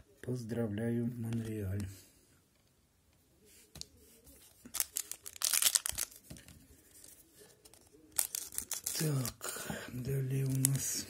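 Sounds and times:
foil wrapper crinkling and tearing: 4.6 - 6.4, 8.1 - 9.4.

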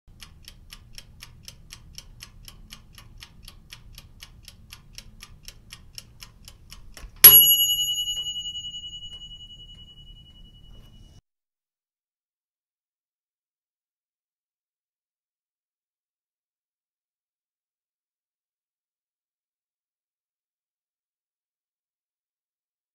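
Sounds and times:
kitchen timer ticking: 0.1 - 10.8
timer bell ringing: 7.2 - 11.2.

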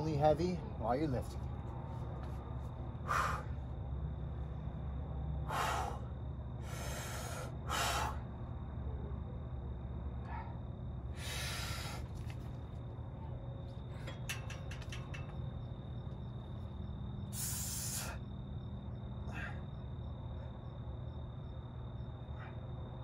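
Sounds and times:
man's hard hissing breaths: 3.0 - 3.7, 5.4 - 8.4, 10.2 - 12.3, 17.2 - 18.4, 19.2 - 19.9.

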